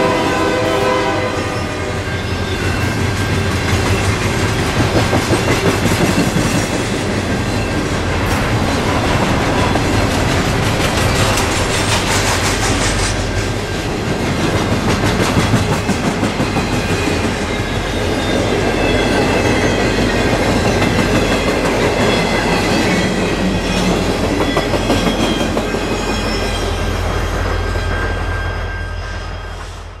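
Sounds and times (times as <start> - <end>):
freight train rumble: 0.0 - 30.0
wheels clattering over rails: 3.7 - 13.4.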